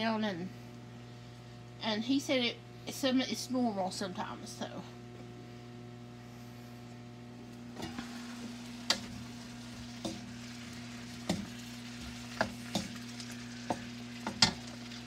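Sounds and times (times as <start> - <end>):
vegetables sizzling in a wok: 7.6 - 15.0
utensil tapping and scraping pan: 8.8 - 9.2, 9.8 - 15.0.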